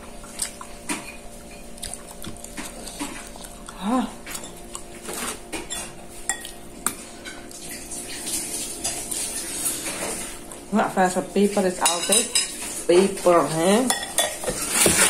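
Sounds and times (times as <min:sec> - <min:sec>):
person humming mm: 0:03.6 - 0:04.2
spoon clinking against bowls: 0:05.2 - 0:06.6, 0:11.8 - 0:14.6.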